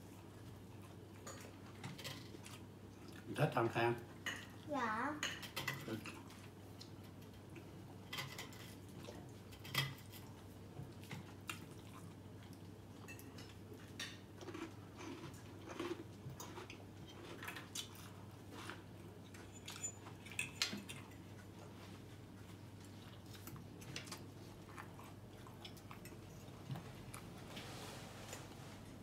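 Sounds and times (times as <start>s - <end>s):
forks clinking on plates: 13.1s - 14.1s.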